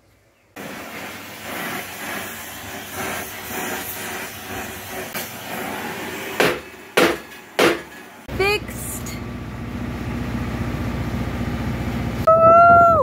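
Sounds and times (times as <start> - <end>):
welding crackling hiss: 0.6 - 9.0
loud metal knocks: 6.4 - 8.2.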